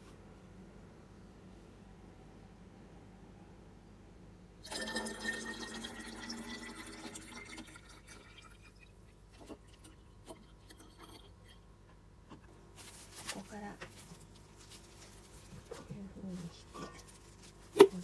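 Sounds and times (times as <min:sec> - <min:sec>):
liquid pouring into plastic bottle: 0:04.6 - 0:11.4.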